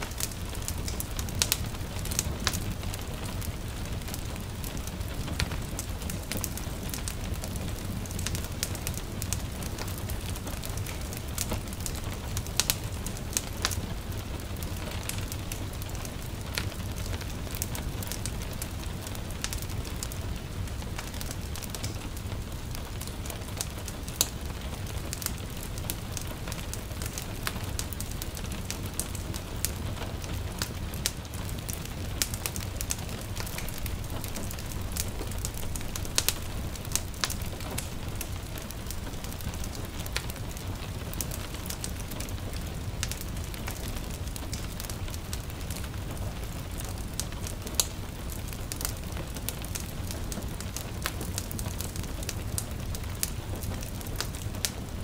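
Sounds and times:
light rain hiss: 0.0s - 55.0s
wood fire crackling and popping: 0.0s - 55.0s.

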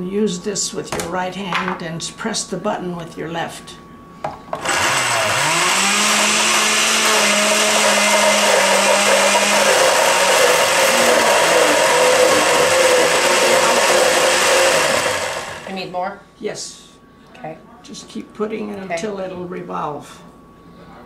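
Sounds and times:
blender motor running: 4.6s - 15.8s.

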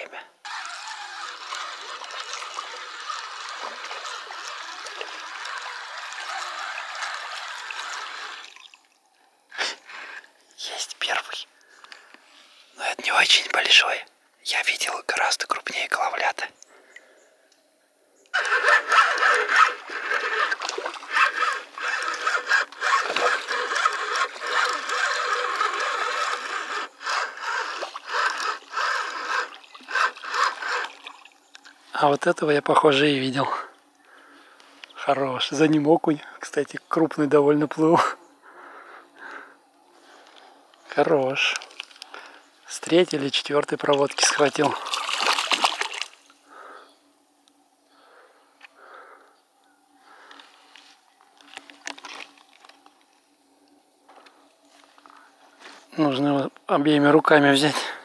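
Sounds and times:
fishing reel whirring: 0.4s - 8.8s, 18.4s - 31.7s
river water trickling: 0.4s - 10.6s, 16.6s - 57.6s.

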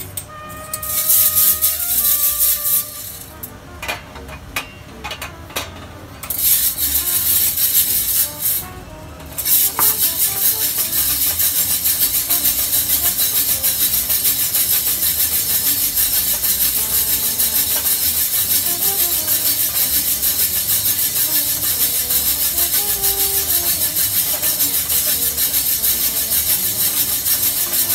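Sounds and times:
coffee beans rattling in drum roaster: 0.0s - 27.9s
roaster hiss: 0.7s - 3.6s, 6.2s - 27.9s
background music: 6.3s - 27.9s.

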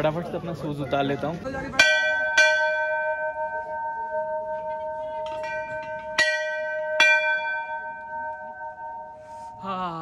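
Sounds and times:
brass bells ringing: 1.7s - 9.7s.

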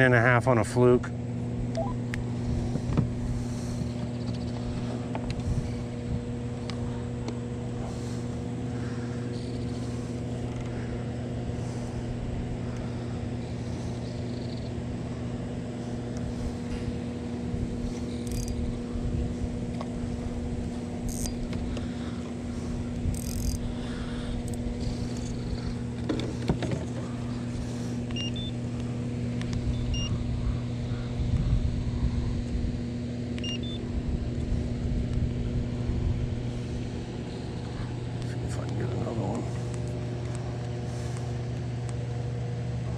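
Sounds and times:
low electrical hum: 0.0s - 42.9s
faint short beeps: 1.8s - 2.0s.

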